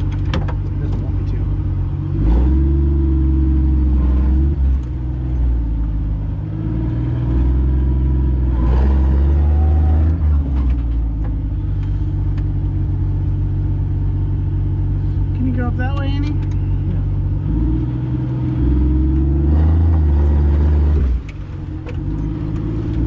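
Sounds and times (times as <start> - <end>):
vehicle knocks and rattles: 0.0 - 1.4
car engine running: 0.0 - 23.0.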